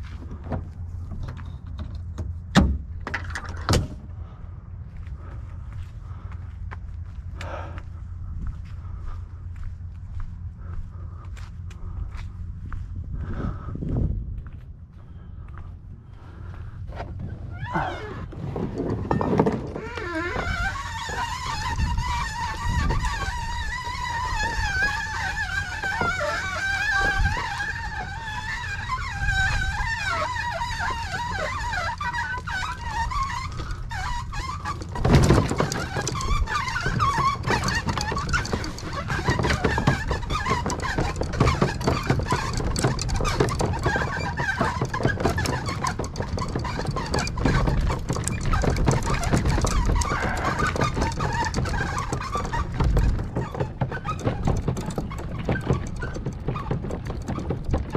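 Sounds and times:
kayak cart rolling rumble: 0.0 - 11.2, 15.1 - 57.9
wheels rattling over gravel: 17.2 - 57.9.

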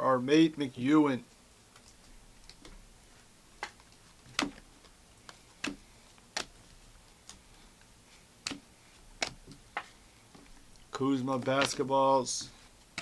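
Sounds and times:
trading cards clicking off stack: 3.6 - 7.5, 8.4 - 13.0.

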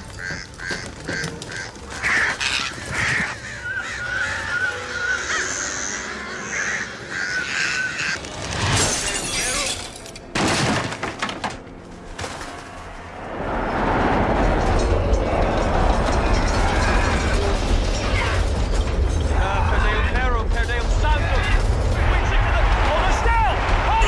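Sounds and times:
crows cawing: 0.0 - 8.4.

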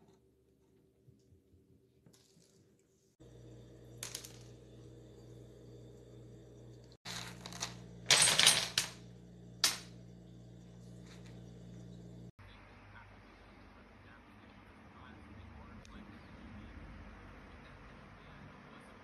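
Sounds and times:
faint steady hum: 0.0 - 19.0
dominoes clattering on wooden floor: 7.1 - 9.0.

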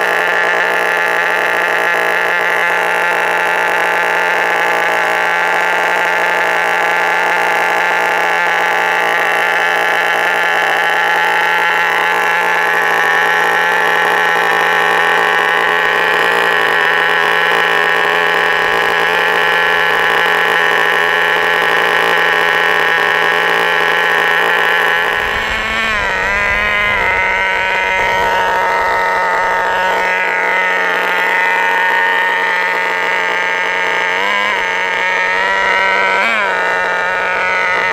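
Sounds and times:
high-pitched model engine: 0.0 - 37.9
low rumble: 23.0 - 31.0.

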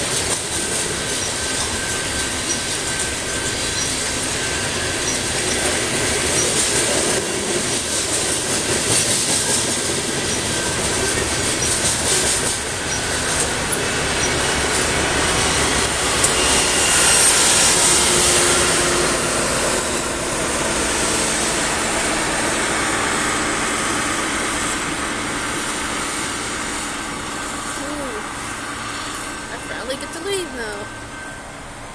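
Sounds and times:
wheels clicking over rail joints: 0.0 - 16.4
train wheels on rails: 0.0 - 31.9.

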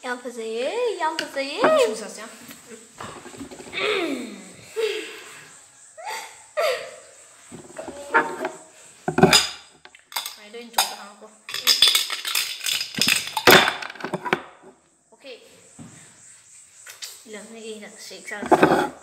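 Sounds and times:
cups clattering: 1.6 - 2.0, 3.0 - 3.9, 7.5 - 14.6, 18.4 - 19.0
cups knocking on wooden table: 7.5 - 9.6.

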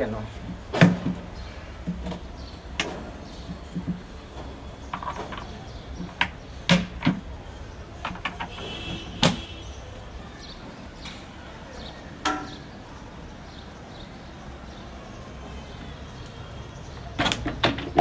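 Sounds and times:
hard plastic knocking and clicking: 1.8 - 4.1, 4.9 - 7.3, 8.0 - 8.6, 17.2 - 18.0.

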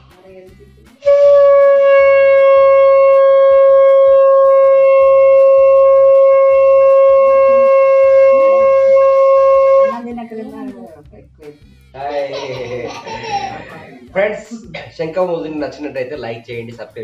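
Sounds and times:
conch shell blown: 1.0 - 10.1.

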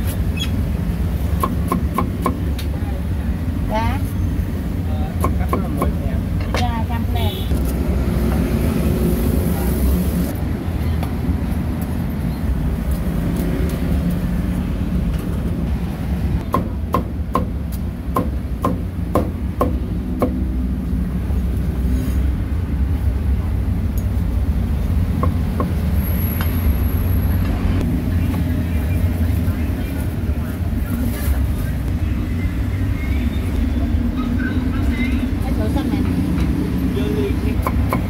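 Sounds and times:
cleaver chopping on wooden block: 16.4 - 17.5.

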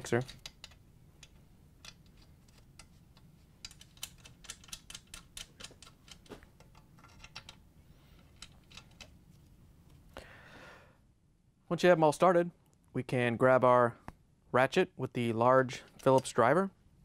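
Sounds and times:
screws clicking by hand: 0.1 - 7.6.

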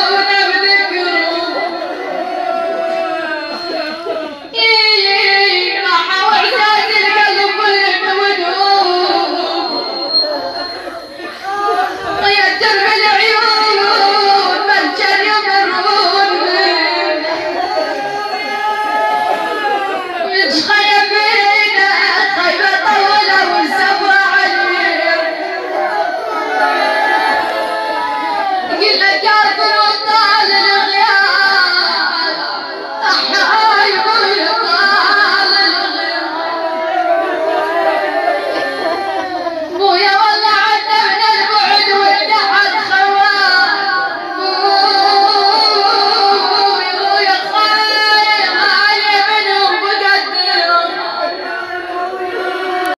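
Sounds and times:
woman chanting a lament: 0.0 - 52.9.

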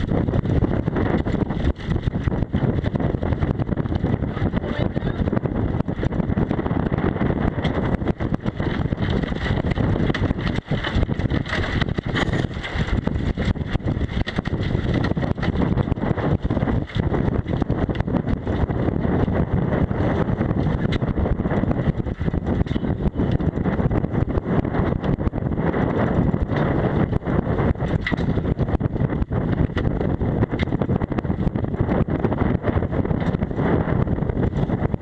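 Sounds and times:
gusty wind on microphone: 0.0 - 35.0.

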